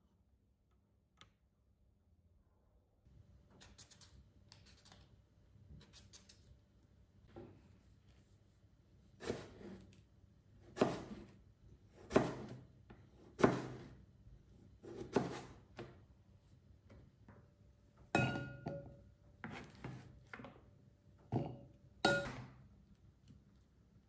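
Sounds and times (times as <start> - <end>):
knife chopping on cutting board: 9.2 - 9.8, 10.6 - 11.3, 11.9 - 14.0, 14.8 - 16.0, 19.4 - 20.1.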